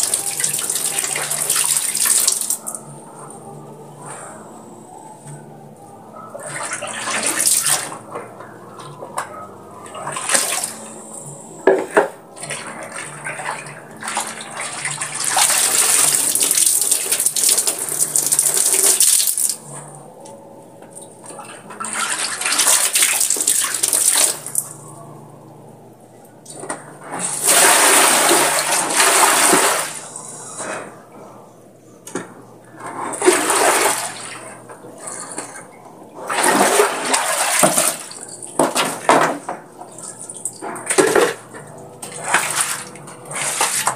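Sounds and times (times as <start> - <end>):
water splashing and pouring: 0.0 - 2.6, 6.4 - 8.1, 9.9 - 10.8, 12.4 - 19.6, 21.7 - 24.6, 27.0 - 30.0, 33.0 - 35.6, 36.2 - 43.9
clothes sloshing in water: 6.4 - 8.2, 9.8 - 10.8, 12.4 - 19.5, 21.3 - 24.6, 27.1 - 30.0, 33.0 - 43.9.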